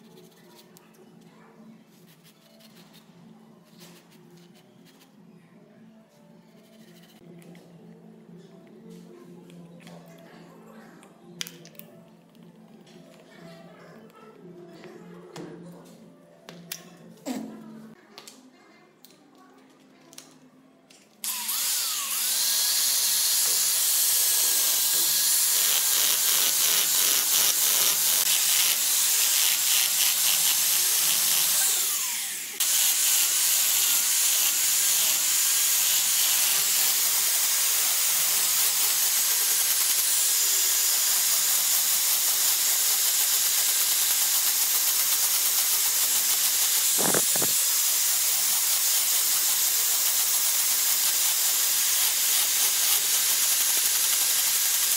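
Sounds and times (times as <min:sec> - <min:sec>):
angle grinder grinding wood: 0:21.2 - 0:54.9.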